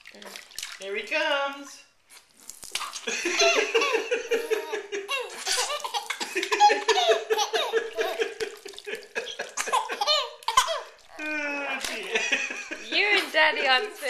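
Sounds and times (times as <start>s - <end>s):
baby laughing: 3.1s - 12.9s.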